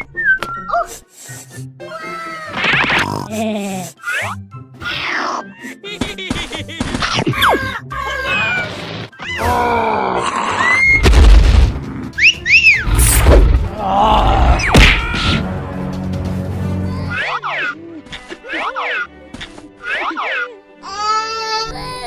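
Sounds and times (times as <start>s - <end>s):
cartoon music: 7.1s - 9.6s, 16.7s - 19.1s, 19.8s - 21.4s.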